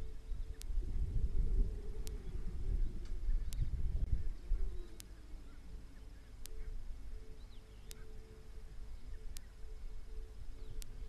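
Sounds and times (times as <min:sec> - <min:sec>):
low rumble: 0:00.0 - 0:07.5
faint bird chirps: 0:00.0 - 0:11.0
wavering hum: 0:00.0 - 0:11.0
sharp ticks: 0:07.8 - 0:08.1, 0:10.7 - 0:11.0.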